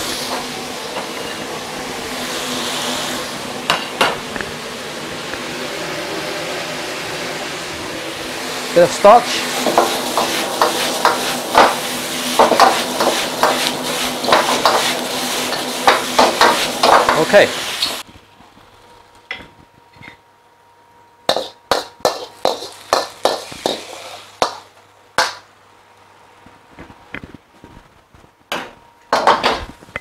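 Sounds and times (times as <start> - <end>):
stir-fry sizzling in a wok: 0.0 - 18.1, 21.3 - 25.4.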